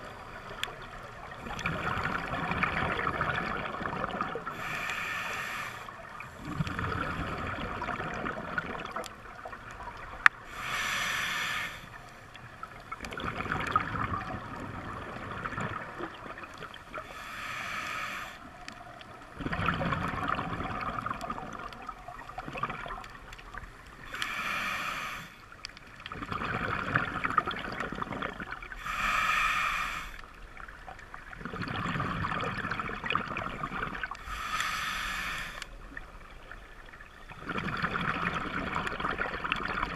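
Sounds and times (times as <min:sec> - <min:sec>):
exhaled bubbles rushing: 0:01.3 - 0:04.6, 0:06.4 - 0:10.1, 0:12.7 - 0:16.8, 0:19.3 - 0:23.6, 0:26.0 - 0:28.7, 0:31.2 - 0:34.2, 0:37.3 - 0:39.9
hissing regulator inhale: 0:04.5 - 0:07.1, 0:10.4 - 0:12.2, 0:17.0 - 0:18.6, 0:24.0 - 0:25.6, 0:28.7 - 0:30.4, 0:34.2 - 0:35.8.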